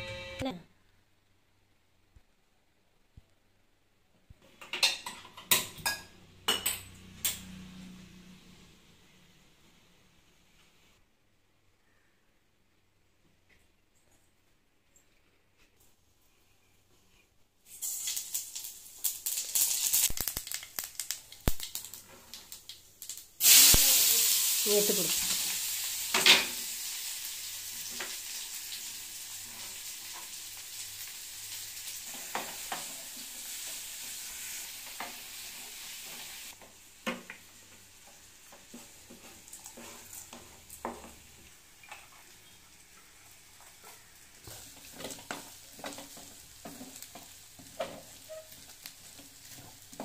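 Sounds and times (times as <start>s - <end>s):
hot oil sizzling in a pan: 17.6s - 50.0s
wooden spatula scraping a pan: 38.4s - 41.2s, 43.0s - 50.0s.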